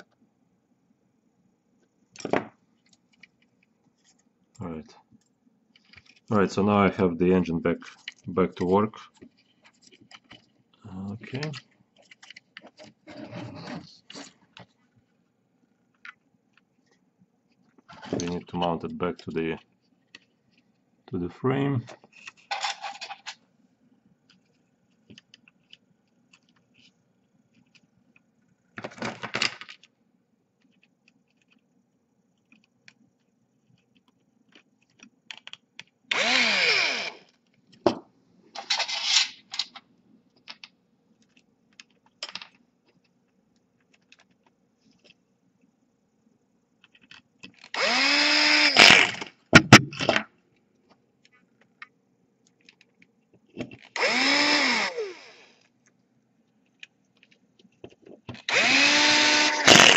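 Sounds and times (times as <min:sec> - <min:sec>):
electric screwdriver whirring: 0:36.1 - 0:37.3, 0:47.7 - 0:49.2, 0:54.0 - 0:55.6, 0:58.4 - 0:59.9.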